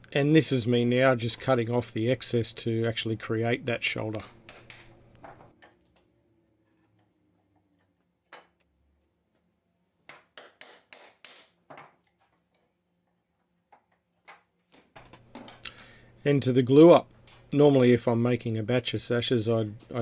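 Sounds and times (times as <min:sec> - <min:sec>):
chisel clicks and knocks: 0:04.1 - 0:05.8.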